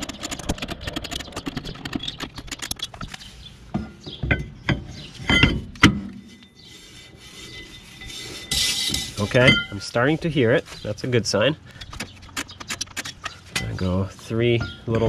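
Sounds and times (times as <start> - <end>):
metallic clunks and clinks: 3.8 - 6.5, 8.5 - 9.9
faint metallic ringing: 7.4 - 10.1.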